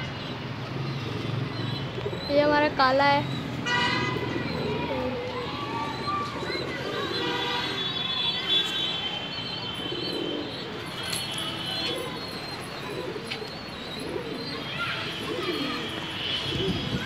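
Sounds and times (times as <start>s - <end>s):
pigeons cooing: 0.9s - 7.8s, 9.6s - 17.0s
high-pitched bird calls: 9.3s - 16.3s.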